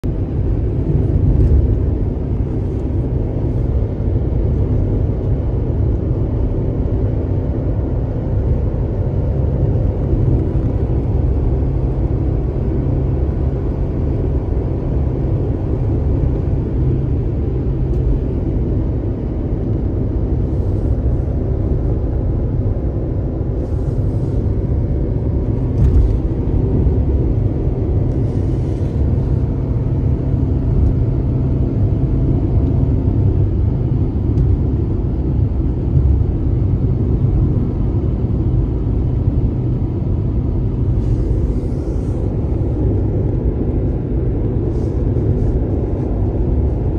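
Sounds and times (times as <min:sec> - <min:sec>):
car engine and road rumble: 0:00.0 - 0:46.9.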